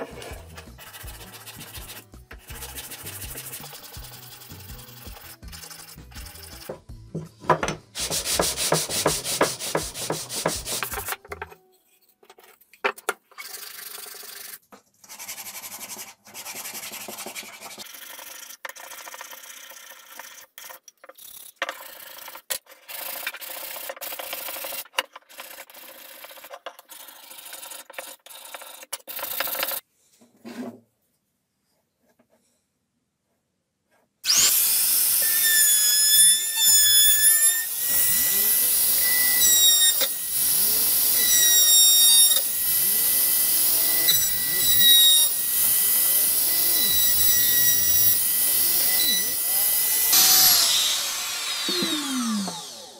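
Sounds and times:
metal file rasping on wood: 0.0s - 6.8s, 8.0s - 11.1s
sanding wood by hand: 0.0s - 6.8s, 8.0s - 11.1s, 15.1s - 18.0s.

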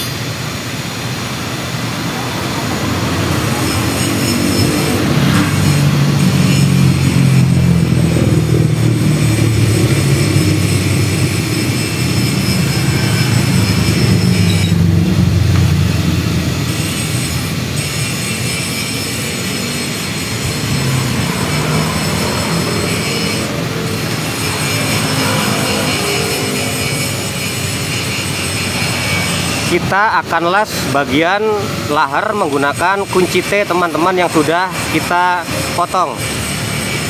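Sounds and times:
machine running with low hum: 5.4s - 29.5s.

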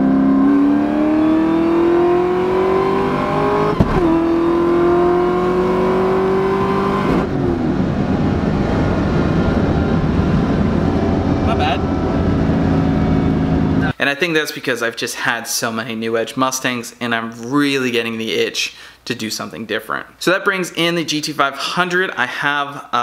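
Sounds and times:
car engine accelerating hard: 0.0s - 14.0s.

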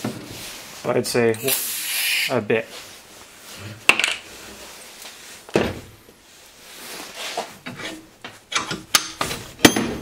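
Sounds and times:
metal clunk at a bench vise: 8.6s - 10.0s.

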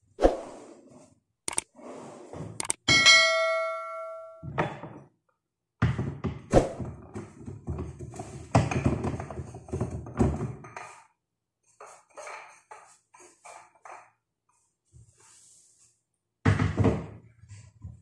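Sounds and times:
struck metal item ringing: 2.9s - 4.5s
kitchen items clattering: 6.8s - 11.2s.

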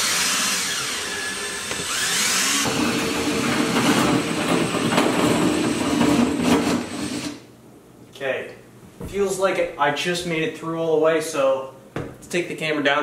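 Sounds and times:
electric drill boring: 0.0s - 7.4s.

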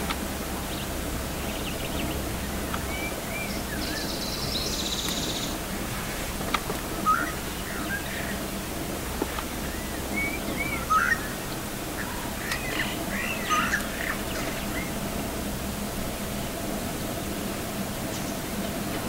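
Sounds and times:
steady low hum: 0.0s - 19.0s
birds chirping and whistling: 1.4s - 5.6s, 6.9s - 8.4s, 9.6s - 15.0s.

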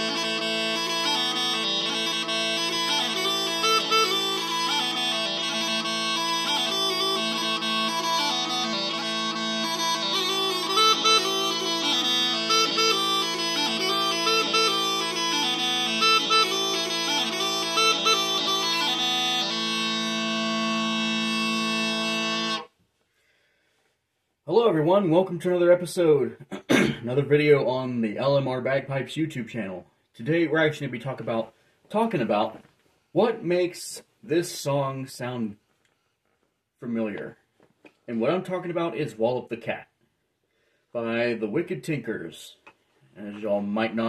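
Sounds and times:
bagpipe drones humming: 0.0s - 22.7s
smallpipes chanter melody: 0.0s - 22.7s.

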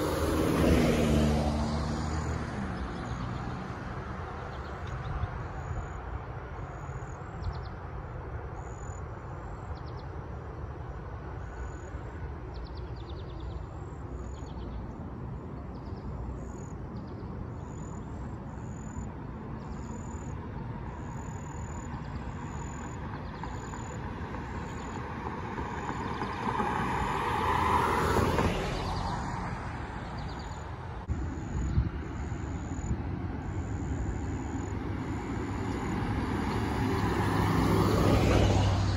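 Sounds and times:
vehicle driving past: 0.0s - 6.0s, 21.1s - 38.9s
street traffic rumble: 0.0s - 38.9s.

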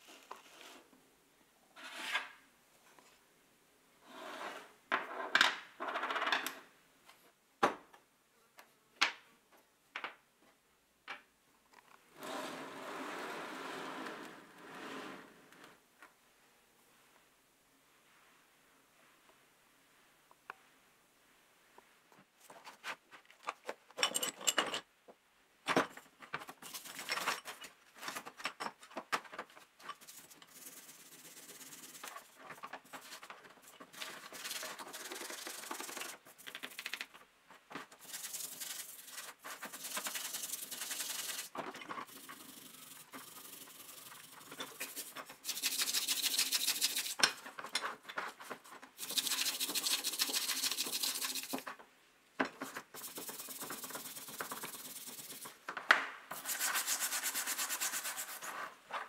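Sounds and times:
metal parts clattering: 24.0s - 24.9s.

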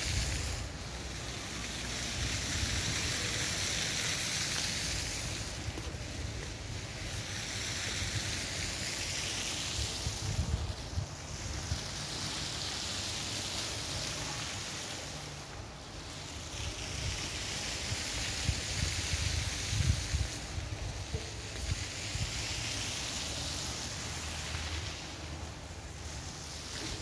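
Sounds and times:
steady hiss: 0.0s - 27.0s
wind buffeting microphone: 17.0s - 22.4s.

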